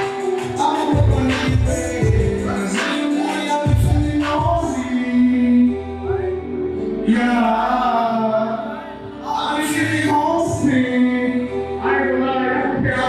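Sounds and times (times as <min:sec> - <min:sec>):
person singing long sliding notes: 0:00.0 - 0:13.0
steady bass line: 0:00.0 - 0:13.0.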